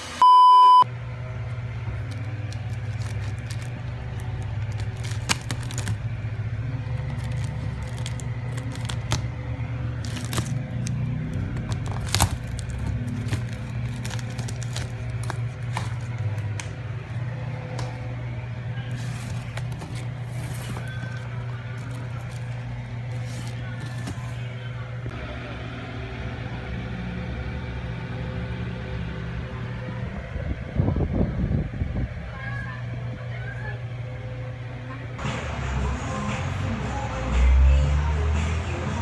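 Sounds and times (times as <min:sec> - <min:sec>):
test-tone beep: 0:00.2 - 0:00.8
steady low hum: 0:00.2 - 0:39.0
plastic packaging crackling: 0:01.9 - 0:06.2, 0:06.8 - 0:16.8, 0:18.9 - 0:24.5.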